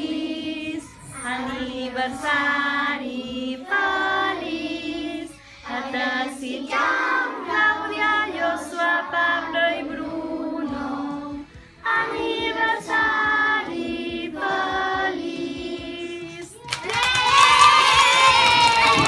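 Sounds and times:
children singing together: 0.0 - 16.6
children cheering and shouting: 16.6 - 19.0.

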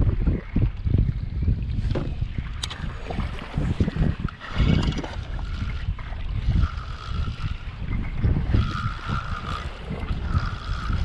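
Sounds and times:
water slapping kayak hull: 0.0 - 11.0
wind buffeting microphone: 0.0 - 11.0
fishing reel whirring: 2.6 - 11.0.

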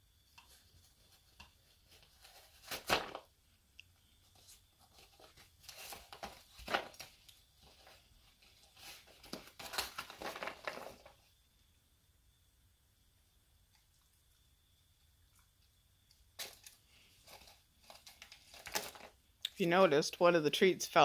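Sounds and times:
dog ripping cardboard: 1.9 - 3.3, 5.0 - 7.2.

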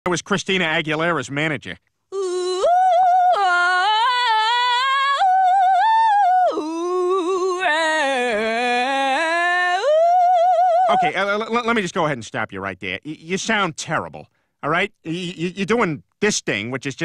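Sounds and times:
woman singing a cappella: 2.1 - 11.1.

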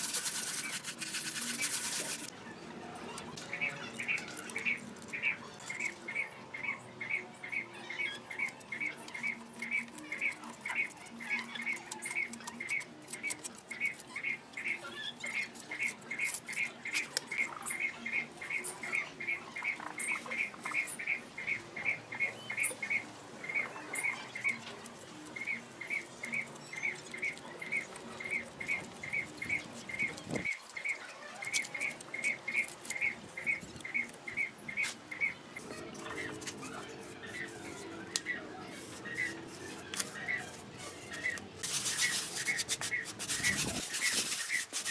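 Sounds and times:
trowel scraping wet mortar: 0.0 - 2.3, 36.2 - 44.9
bird chirping: 0.1 - 44.9.

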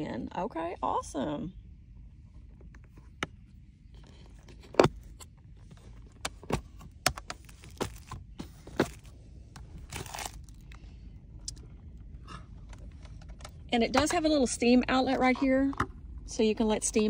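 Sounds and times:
plastic wrapping rustling: 9.7 - 10.7.

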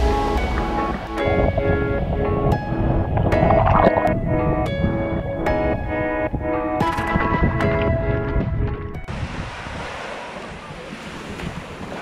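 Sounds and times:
instrumental music with held notes: 0.0 - 9.1.

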